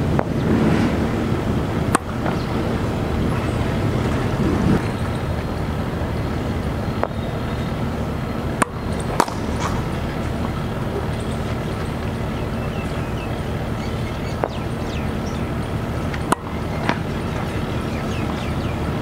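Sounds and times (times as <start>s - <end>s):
steady outdoor noise: 0.0s - 19.0s
racket striking ball: 0.1s - 4.9s, 7.0s - 7.3s, 8.5s - 12.1s, 15.6s - 17.6s
bat hitting ball: 1.8s - 2.7s, 8.5s - 11.9s, 16.1s - 17.2s.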